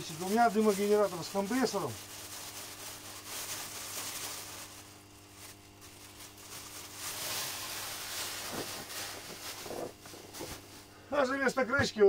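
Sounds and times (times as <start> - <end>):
steady low hum: 0.0 - 12.0
hands rustling and scraping: 5.4 - 10.9.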